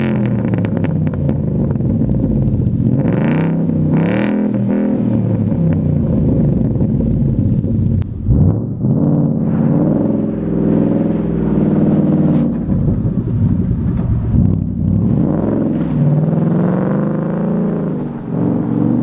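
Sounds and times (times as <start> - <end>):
car engine revving past: 8.2 - 19.0.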